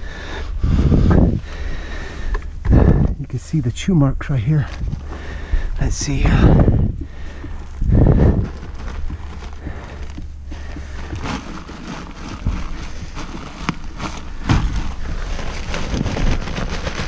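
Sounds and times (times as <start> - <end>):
insulation scraping and rustling: 0.5 - 17.0
knees knocking on wood: 4.8 - 16.2.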